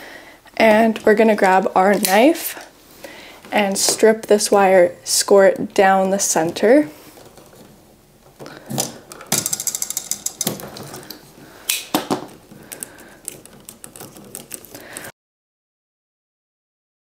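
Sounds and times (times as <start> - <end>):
cable knocking and rustling: 6.1 - 15.1
knife scoring plastic cable: 8.4 - 15.1.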